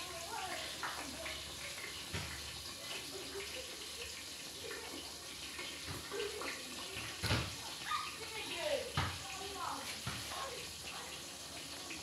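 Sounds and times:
soup bubbling in a pan: 0:00.0 - 0:08.2.

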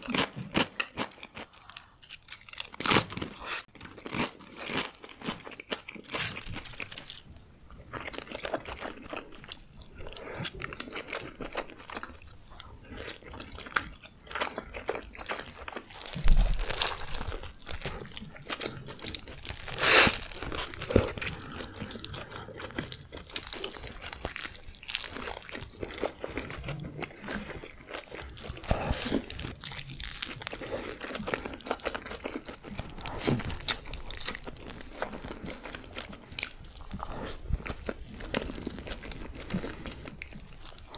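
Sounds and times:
crisp crunching while eating: 0:00.0 - 0:40.9
wet chewing: 0:00.0 - 0:40.9.

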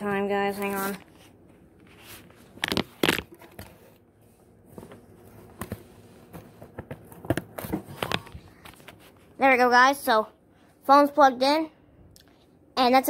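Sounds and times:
charger cable handling noise: 0:02.5 - 0:03.8.

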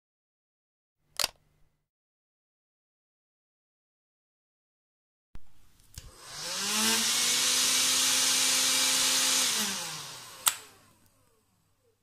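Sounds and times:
sharp click: 0:01.2 - 0:01.4, 0:10.4 - 0:10.7
vacuum cleaner motor whine: 0:06.0 - 0:11.2
vacuum switch click: 0:10.4 - 0:10.7.

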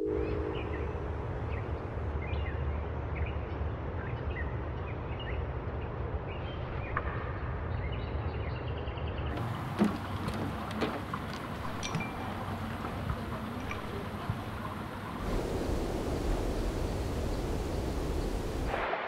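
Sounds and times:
birds chirping: 0:00.0 - 0:02.6, 0:08.8 - 0:18.7
low outdoor rumble: 0:00.0 - 0:18.8.

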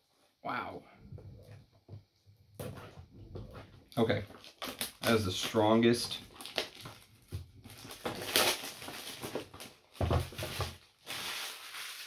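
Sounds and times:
cardboard and paper rustling: 0:02.6 - 0:12.0.

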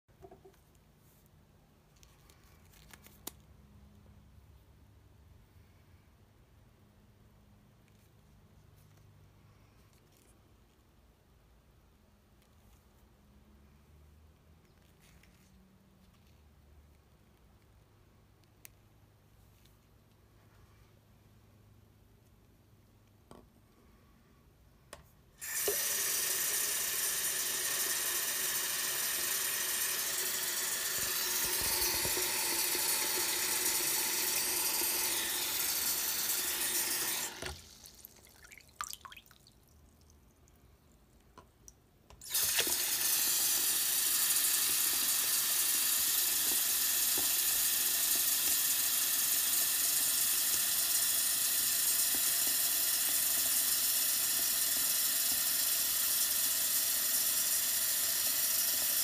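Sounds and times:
tap water running into sink: 0:25.4 - 0:39.5, 0:42.2 - 0:59.0.

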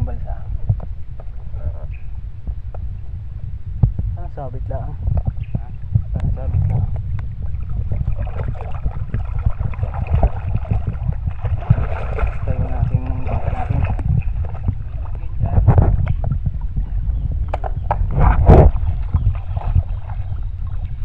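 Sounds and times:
wind rumble on microphone: 0:00.0 - 0:21.0
water sloshing and splashing: 0:05.0 - 0:21.0.

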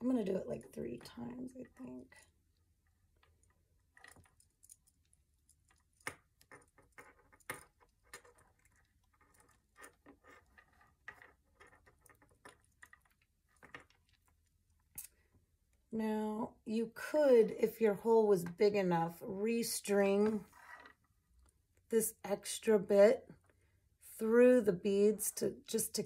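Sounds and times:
hands tying knots in cord: 0:02.7 - 0:15.8.

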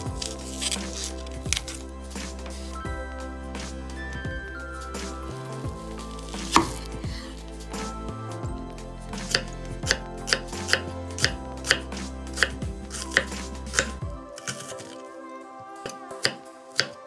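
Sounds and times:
knife chopping on cutting board: 0:06.5 - 0:06.9.

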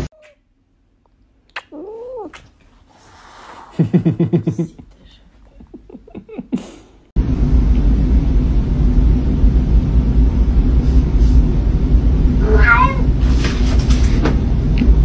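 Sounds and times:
loud low rumble: 0:07.2 - 0:13.4.

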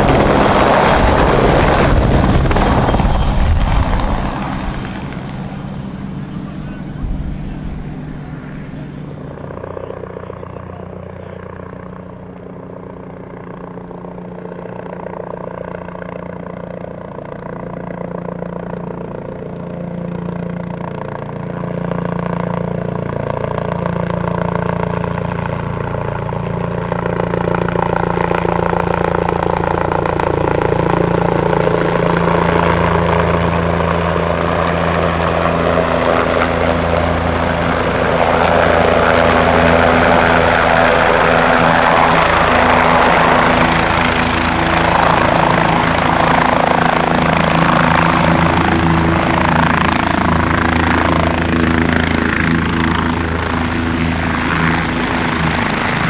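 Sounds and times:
high thin turbine whine: 0:00.0 - 0:11.9, 0:34.9 - 0:56.0
helicopter rotor and engine noise: 0:00.0 - 0:56.0.

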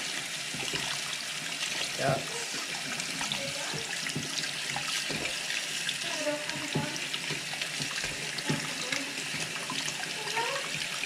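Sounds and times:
water splashing: 0:00.0 - 0:11.0.

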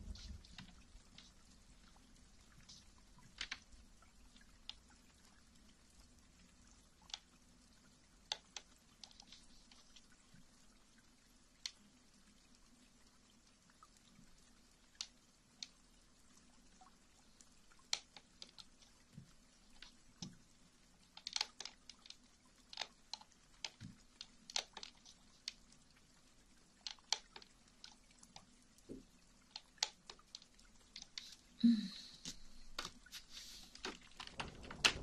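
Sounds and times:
faint low hum: 0:00.0 - 0:08.3.

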